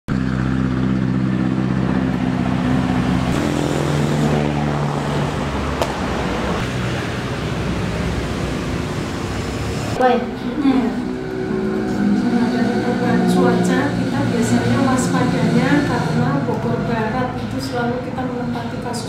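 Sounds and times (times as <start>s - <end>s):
passing traffic: 0.1s - 19.0s
vehicle engine running: 0.1s - 19.0s.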